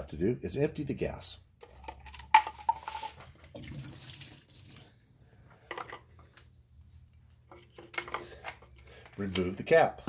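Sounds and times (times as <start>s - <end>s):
fuel pouring and splashing: 2.8s - 5.0s.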